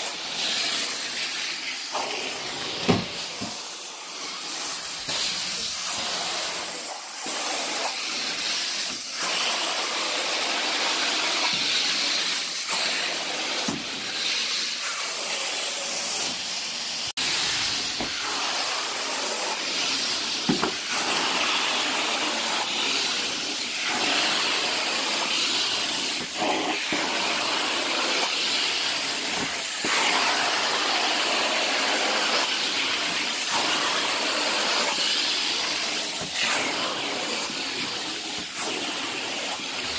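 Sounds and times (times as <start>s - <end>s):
carpet extraction wand hissing: 17.2s - 39.9s.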